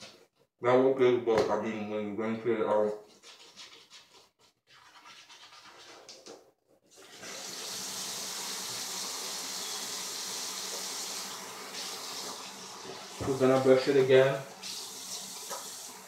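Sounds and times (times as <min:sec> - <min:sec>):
toothbrush scrubbing: 0:03.0 - 0:06.3
faucet running into sink: 0:07.0 - 0:16.0.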